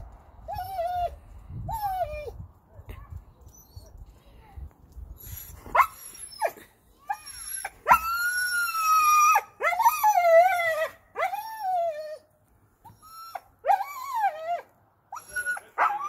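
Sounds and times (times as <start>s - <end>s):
dog whining and howling: 0.4s - 2.3s, 5.8s - 12.2s, 12.8s - 16.0s.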